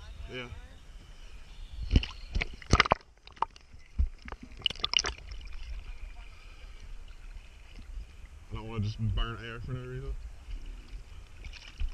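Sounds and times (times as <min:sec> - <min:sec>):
sea water sloshing and splashing: 0:01.9 - 0:08.5, 0:10.5 - 0:11.9.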